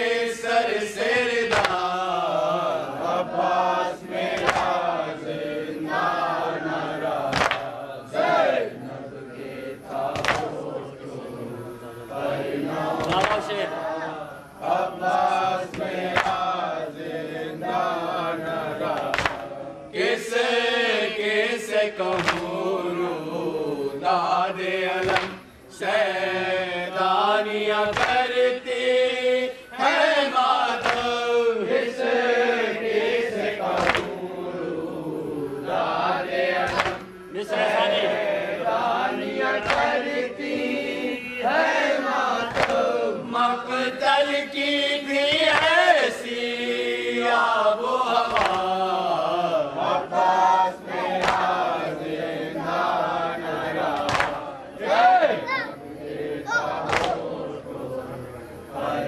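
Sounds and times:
men chanting in unison: 0:00.0 - 0:59.0
chest-beating slaps: 0:01.5 - 0:01.9, 0:04.3 - 0:04.8, 0:07.2 - 0:07.7, 0:10.1 - 0:10.5, 0:13.0 - 0:13.6, 0:15.7 - 0:16.5, 0:18.9 - 0:19.5, 0:22.1 - 0:22.6, 0:25.0 - 0:25.5, 0:27.9 - 0:28.2, 0:30.8 - 0:31.2, 0:33.6 - 0:34.2, 0:36.6 - 0:37.1, 0:39.6 - 0:40.0, 0:42.5 - 0:42.9, 0:45.3 - 0:45.8, 0:48.3 - 0:48.8, 0:51.2 - 0:51.6, 0:53.9 - 0:54.5, 0:56.7 - 0:57.3.

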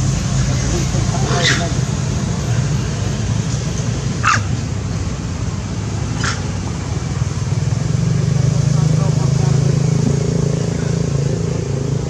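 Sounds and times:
short animal calls: 0:06.1 - 0:06.5.

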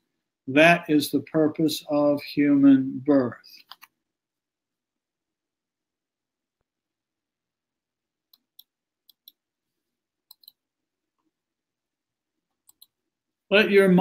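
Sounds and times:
computer mouse clicks: 0:03.6 - 0:04.0, 0:08.3 - 0:09.4, 0:10.3 - 0:10.6, 0:12.5 - 0:13.0.

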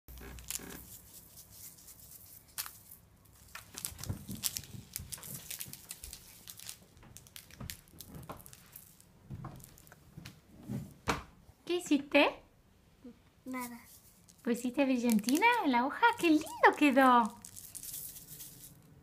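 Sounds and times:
paper crinkling and rustling: 0:00.2 - 0:10.0
glitter being sprinkled: 0:16.2 - 0:18.9.

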